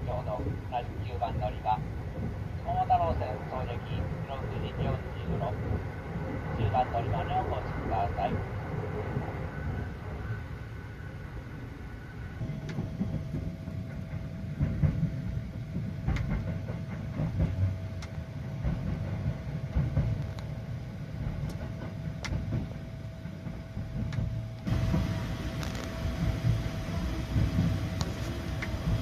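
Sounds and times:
train wheels rumbling on track: 0.0 - 29.0
clacks over rail joints: 12.6 - 20.5.

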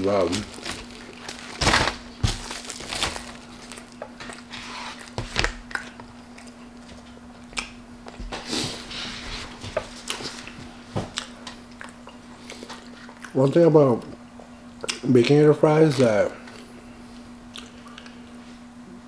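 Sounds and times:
faint steady hum: 0.0 - 19.0
paper bag rustling: 0.2 - 3.8.

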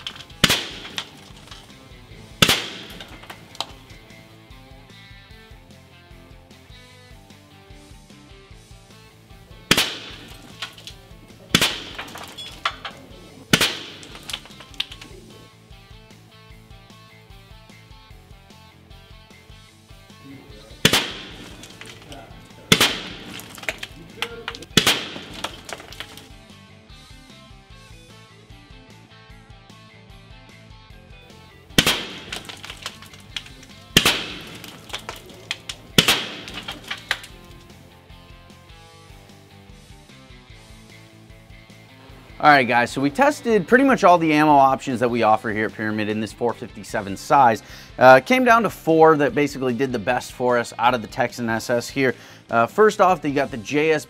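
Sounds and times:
gunshots with ringing tail: 0.0 - 4.1, 9.6 - 15.2, 20.6 - 26.3, 31.8 - 37.6
air rifle shots cracking: 0.0 - 4.4, 9.6 - 15.3, 20.6 - 26.4, 31.7 - 37.8
background music with steady beat: 0.0 - 54.0.

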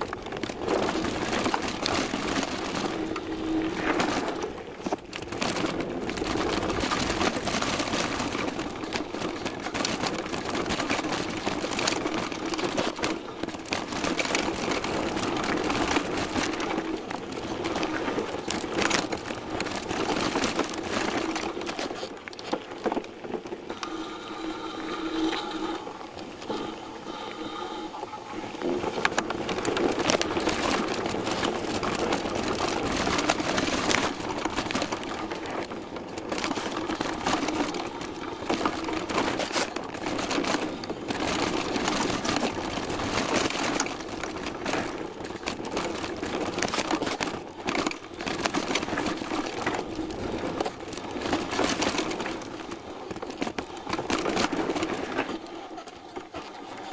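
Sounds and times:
mountain bike rattling: 0.0 - 56.9
high whine: 23.7 - 29.2.

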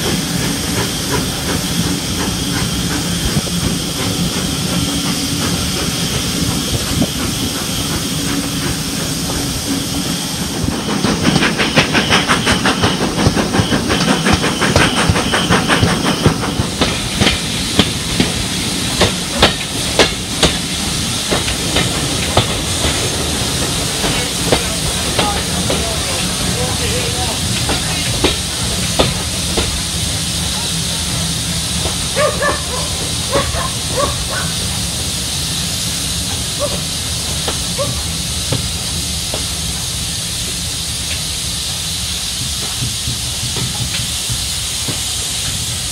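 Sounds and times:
wheels clicking on track: 0.0 - 35.0, 36.3 - 45.9
fast rhythmic steam beat: 0.0 - 45.9
steam train hiss and rumble: 0.0 - 45.9.

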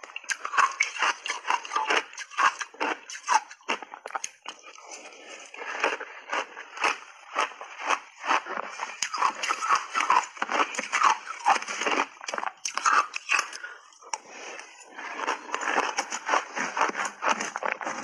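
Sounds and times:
crunching and chewing shaved ice: 0.0 - 18.0
metal spoon scraping ice: 0.2 - 3.7, 7.8 - 13.6, 14.2 - 18.0.

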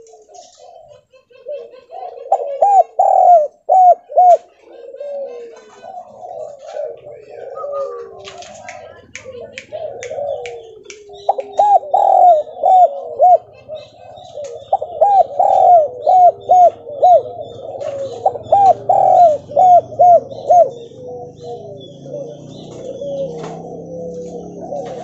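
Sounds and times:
dove cooing: 0.0 - 25.0.

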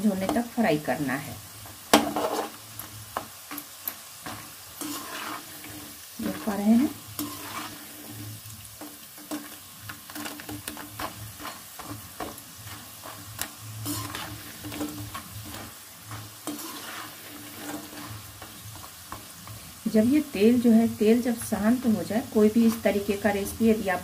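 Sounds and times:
peanuts sizzling in hot oil: 0.0 - 24.0
oil bubbling: 1.5 - 19.9
metal skimmer scraping pan: 1.9 - 2.6, 4.2 - 8.2, 10.1 - 18.9.

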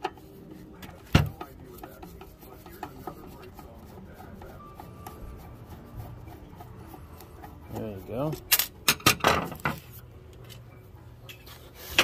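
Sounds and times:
metal screws clicking and scraping: 6.6 - 10.7.

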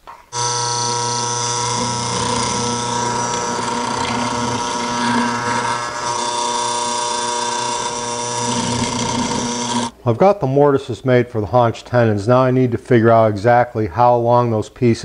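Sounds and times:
mortising machine motor running: 0.3 - 9.9
chisel cutting into wood: 0.4 - 9.9.

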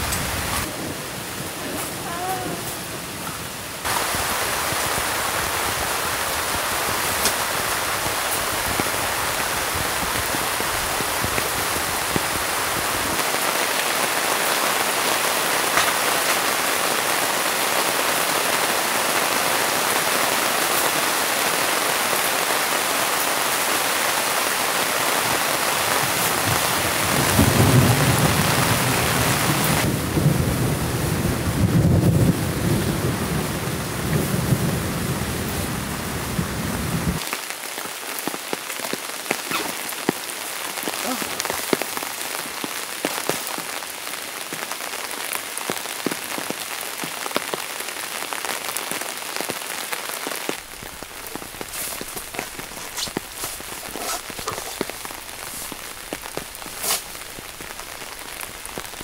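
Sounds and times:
heavy rain on tent: 0.0 - 59.0
low thunder rumbling: 25.8 - 37.2.

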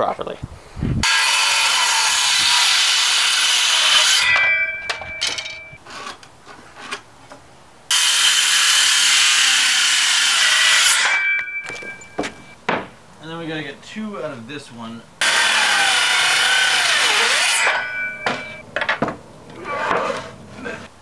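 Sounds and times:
circular saw cutting wood: 1.0 - 4.6, 7.9 - 11.3, 15.2 - 18.6
saw whine: 1.0 - 5.6, 15.2 - 18.6.

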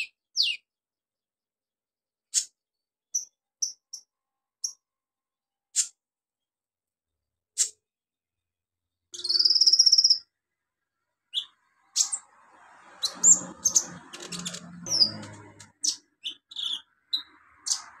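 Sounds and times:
bird chipping and twittering: 0.0 - 0.7, 2.3 - 4.8, 5.7 - 6.0, 9.2 - 10.3, 11.3 - 18.0
bird buzzy trill: 9.2 - 10.3.

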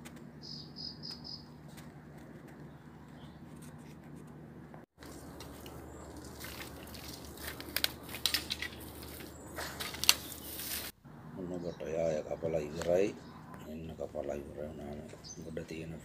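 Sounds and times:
dry bamboo crunching underfoot: 5.0 - 11.0
sharp snaps of bamboo: 6.4 - 10.9.

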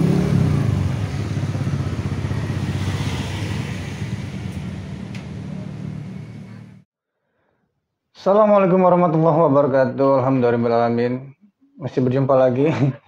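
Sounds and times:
motor scooter engine idling: 0.0 - 6.8.

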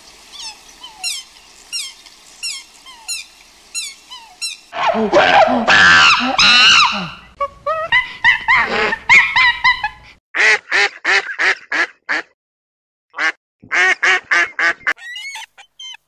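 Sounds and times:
high squealing bird call: 0.3 - 7.3, 15.0 - 16.0.

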